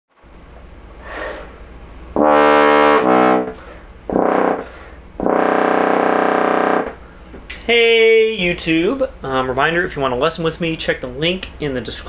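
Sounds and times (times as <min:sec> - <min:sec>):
intake of breath: 0:01.0 - 0:01.7
trombone playing notes: 0:02.2 - 0:07.0.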